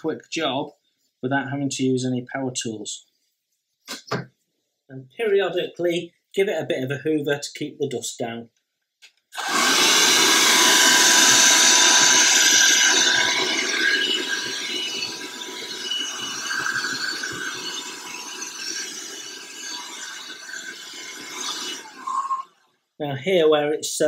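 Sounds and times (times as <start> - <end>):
handheld vacuum cleaner running: 9.4 - 22.5.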